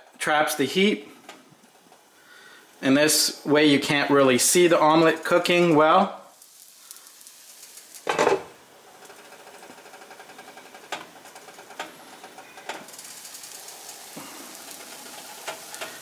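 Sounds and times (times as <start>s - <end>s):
omelette sizzling in oil: 4.4s - 16.0s.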